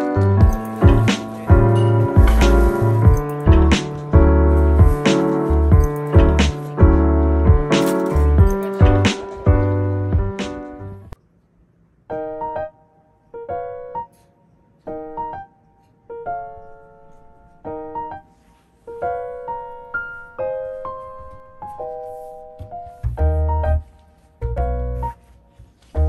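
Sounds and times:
soft electric piano melody: 0:00.0 - 0:11.2, 0:12.1 - 0:25.2.

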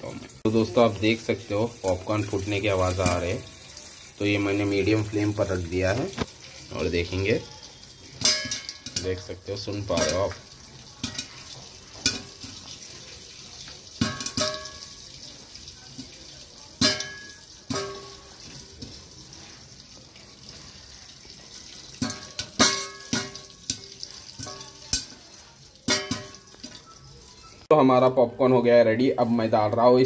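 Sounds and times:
popcorn popping against metal lid: 0:14.0 - 0:14.9, 0:22.0 - 0:25.2.

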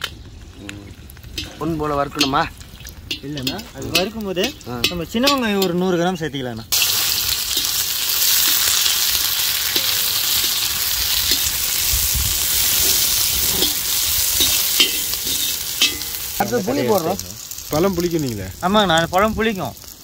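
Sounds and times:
shallots sizzling in oil: 0:00.0 - 0:20.0
metal ladle scraping pan: 0:07.5 - 0:16.5.

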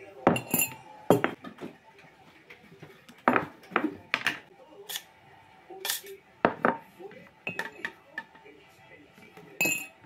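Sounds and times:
spoon clinking on tableware: 0:00.3 - 0:01.4, 0:09.6 - 0:10.0.

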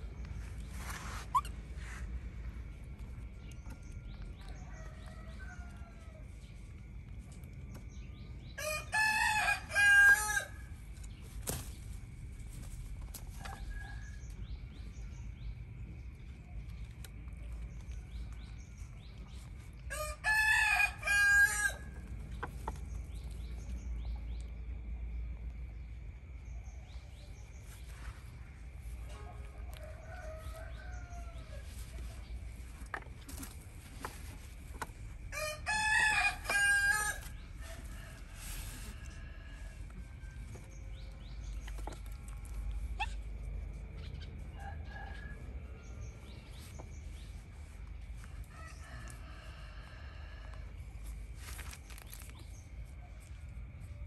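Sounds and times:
rooster crowing: 0:08.6 - 0:10.7, 0:19.9 - 0:22.0, 0:29.1 - 0:31.7, 0:35.2 - 0:40.0, 0:48.5 - 0:50.8.

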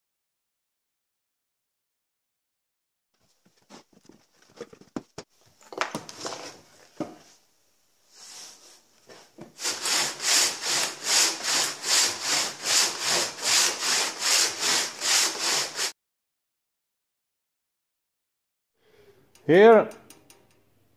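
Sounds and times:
pitsaw ripping a log: 0:09.6 - 0:15.9.

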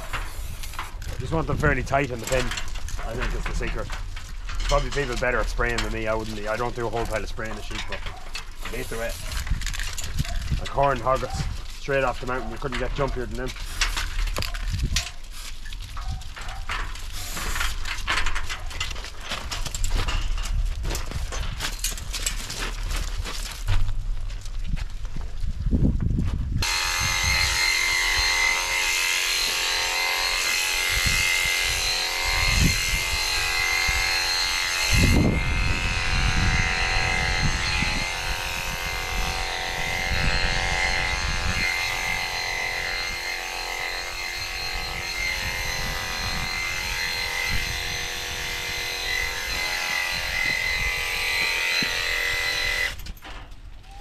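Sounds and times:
electric shears whining: 0:00.0 - 0:15.8, 0:26.6 - 0:53.2.

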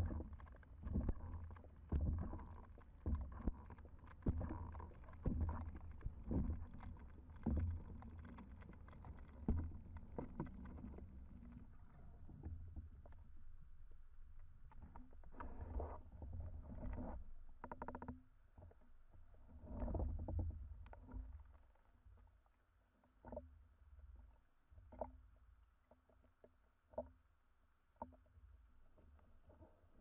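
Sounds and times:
rushing water and bubbles: 0:00.0 - 0:13.3
underwater rumble: 0:00.0 - 0:30.0.

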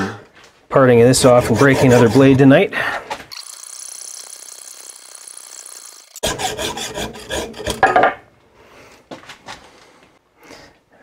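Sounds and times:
hacksaw scraping through steel: 0:01.2 - 0:02.6, 0:03.4 - 0:08.0.

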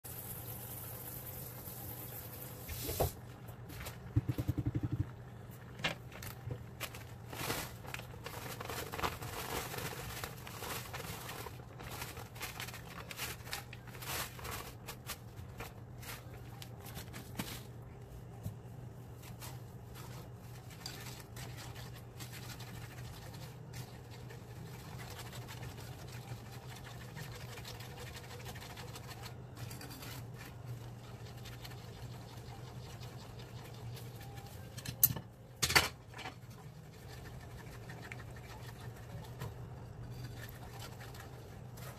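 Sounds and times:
caramel bubbling and sizzling: 0:00.0 - 0:03.1, 0:20.2 - 0:34.8
whisk scraping a skillet: 0:20.0 - 0:34.8, 0:36.4 - 0:41.9.

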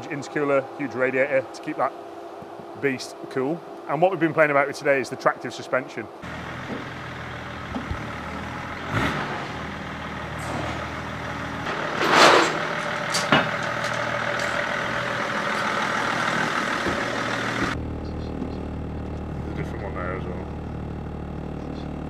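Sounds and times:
car engine running: 0:06.2 - 0:22.0.

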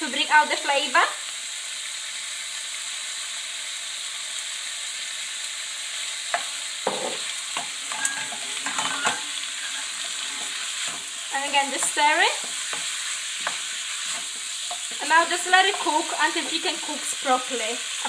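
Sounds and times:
chicken and onion sizzling in pan: 0:00.0 - 0:18.0
wooden spoon scraping a pan: 0:06.4 - 0:16.9.

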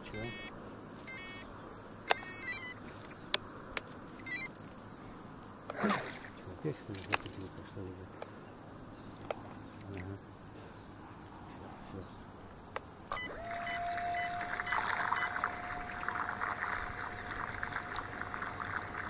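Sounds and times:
electric boat motor whining: 0:01.1 - 0:01.4, 0:13.1 - 0:19.0
water splashing and churning: 0:05.7 - 0:06.5, 0:14.4 - 0:19.0.

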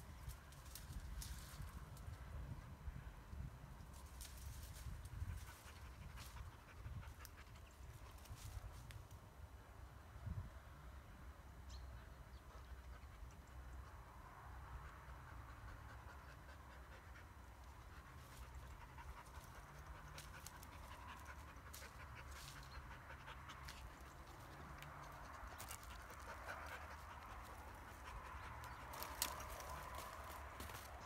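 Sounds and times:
dog panting: 0:15.0 - 0:30.8.

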